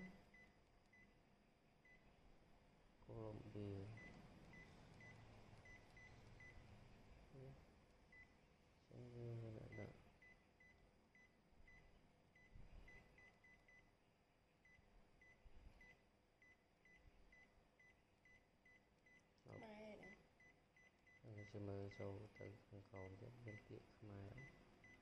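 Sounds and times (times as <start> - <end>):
person speaking: 19.5 - 20.1.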